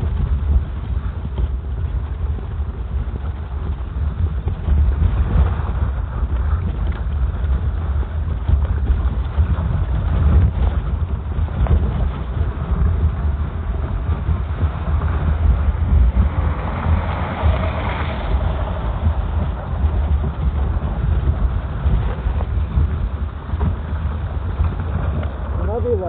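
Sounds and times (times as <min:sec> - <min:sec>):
wind buffeting microphone: 0:00.0 - 0:26.0
car passing: 0:14.3 - 0:23.3.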